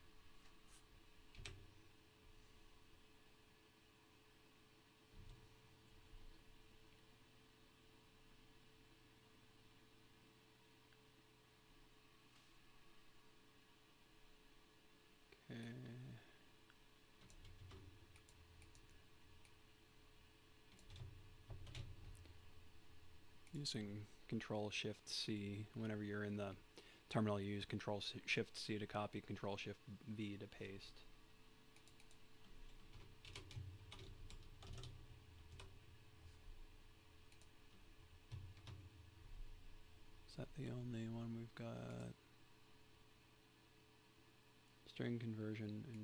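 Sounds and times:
faint low hum: 0.0s - 46.0s
faint keyboard typing: 0.4s - 1.7s, 16.7s - 19.6s, 20.7s - 22.4s, 31.7s - 36.6s, 37.2s - 39.2s, 45.6s - 46.0s.

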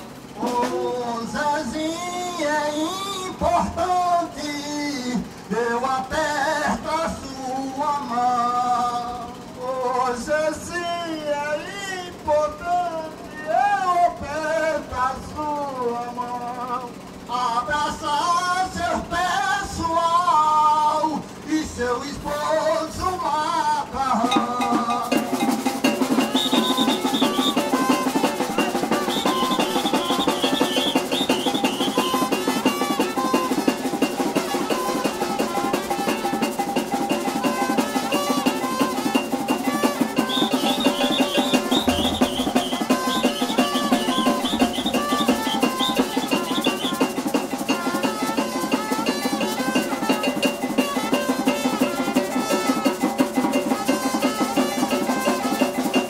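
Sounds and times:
fast dense drums and percussion: 0.0s - 10.7s, 24.1s - 56.0s
high shrill trill: 24.3s - 56.0s
sustained horn notes: 24.6s - 56.0s.

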